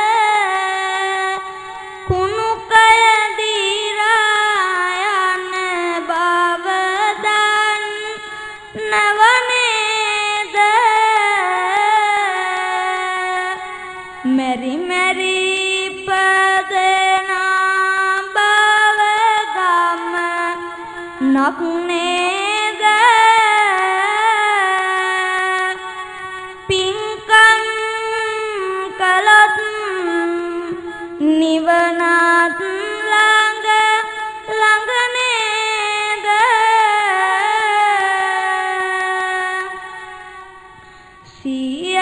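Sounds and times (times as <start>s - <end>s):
child chanting: 0.0s - 40.6s
breaths between phrases: 40.6s - 41.5s.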